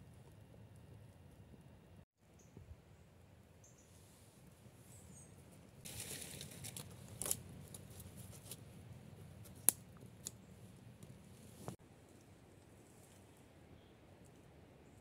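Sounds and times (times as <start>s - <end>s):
twigs rustling and snapping: 5.9s - 8.6s, 9.4s - 10.4s.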